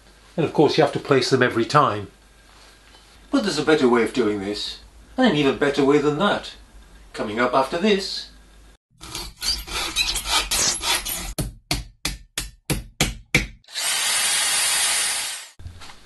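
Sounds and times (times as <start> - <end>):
hand tool scraping: 9.0 - 11.4
saw strokes: 9.0 - 11.4
power tool running with whine: 13.7 - 15.6.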